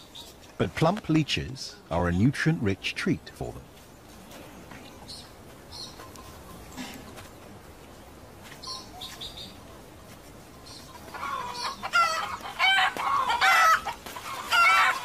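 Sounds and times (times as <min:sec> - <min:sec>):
chickens squawking and clucking: 0:10.6 - 0:15.0.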